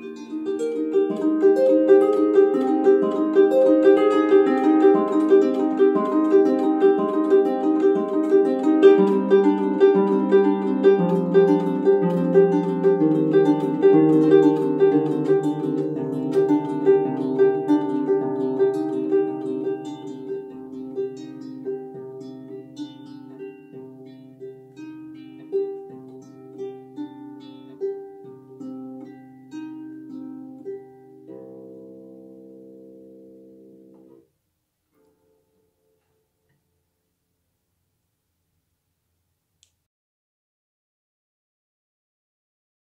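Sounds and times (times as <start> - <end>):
harp strings damped: 0.0 - 34.2
harp plucked notes: 0.0 - 34.3.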